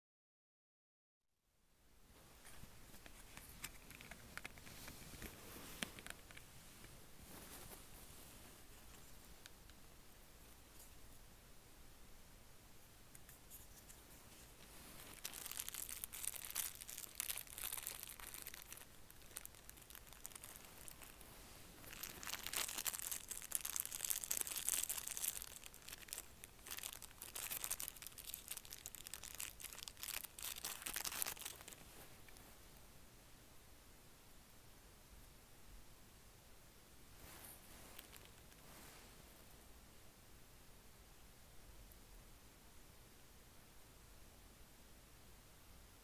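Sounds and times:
plastic bags crinkling: 0:14.6 - 0:32.4, 0:37.4 - 0:38.6.

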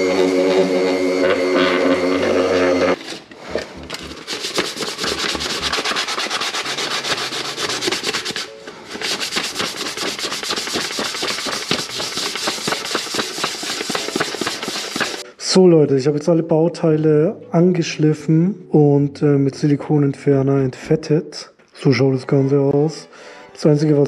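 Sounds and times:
electric orbital sander humming: 0:00.0 - 0:04.5
hand sanding pad scratching paint: 0:03.8 - 0:15.2.

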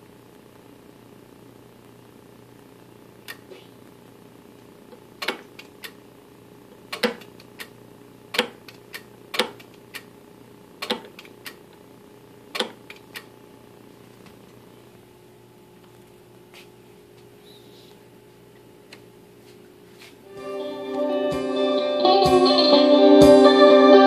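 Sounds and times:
steady low hum: 0:00.0 - 0:24.0
amplifier selector clicks: 0:12.5 - 0:13.3.

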